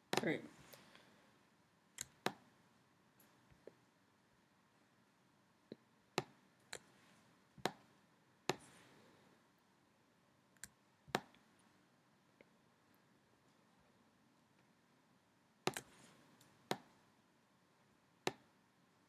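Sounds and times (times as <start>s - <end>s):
computer mouse clicking: 2.0s - 2.4s, 15.6s - 16.9s.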